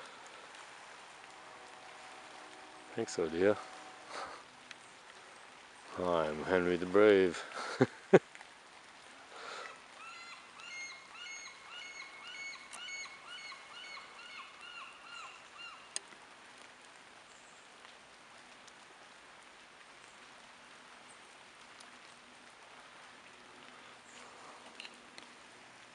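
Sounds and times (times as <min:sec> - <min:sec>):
faint wash of water: 0:00.0 - 0:25.9.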